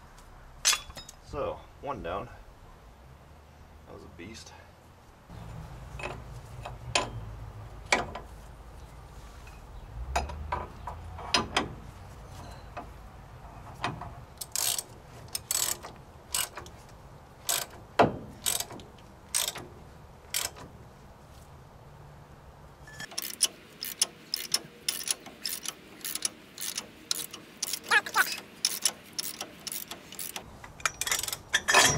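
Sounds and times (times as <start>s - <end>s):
metal clinks and knocks: 5.9s - 7.3s, 9.4s - 16.8s, 22.8s - 31.9s
ratchet clicking: 14.4s - 16.7s, 17.5s - 17.8s, 18.4s - 19.7s, 20.3s - 20.6s, 23.0s - 31.9s.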